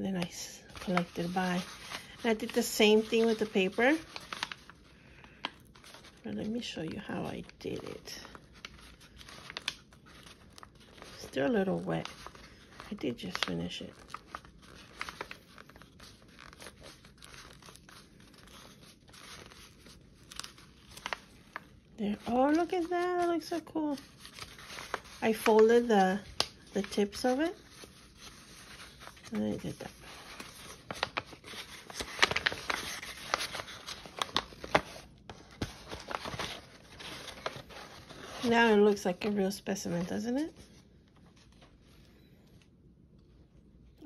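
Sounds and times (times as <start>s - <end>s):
paper rustling and crinkling: 0.0s - 42.7s
paper rustling and tapping: 24.2s - 29.4s, 30.3s - 37.9s.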